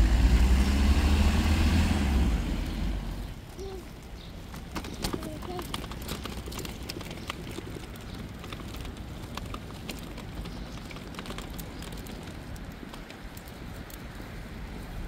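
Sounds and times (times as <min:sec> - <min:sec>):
steady low rumble: 0:00.0 - 0:04.5
irregular sharp ticks: 0:03.5 - 0:14.5.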